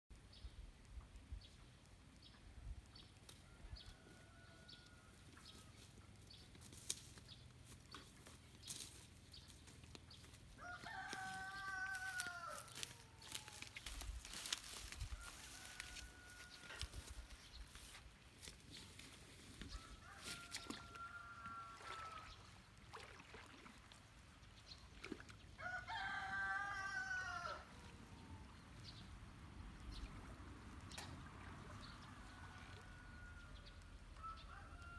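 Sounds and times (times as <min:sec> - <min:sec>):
footsteps through grass: 0:05.1 - 0:22.0
rooster crowing: 0:10.6 - 0:13.6, 0:15.2 - 0:17.0, 0:19.7 - 0:22.2, 0:25.6 - 0:27.9, 0:32.3 - 0:34.9.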